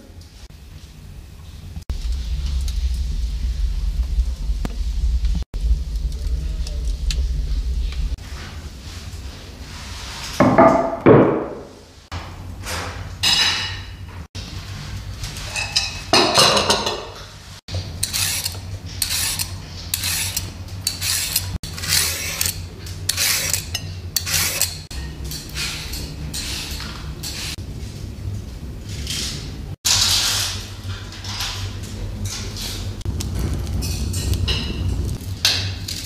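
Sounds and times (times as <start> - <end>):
peeler scraping carrot: 17.9 - 24.9.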